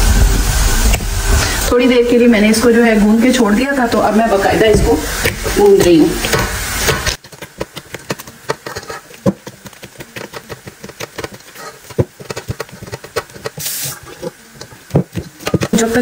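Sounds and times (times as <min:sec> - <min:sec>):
steady hiss: 0:00.0 - 0:16.0
hands kneading dough: 0:03.8 - 0:16.0.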